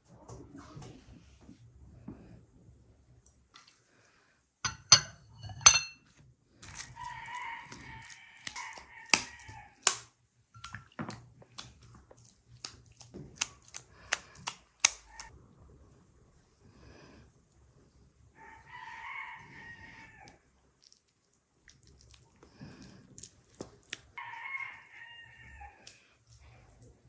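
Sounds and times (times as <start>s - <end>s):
utensils and dishes clinking: 4.7s - 6.1s
rooster crowing: 6.9s - 9.8s, 18.4s - 20.3s, 24.2s - 25.9s.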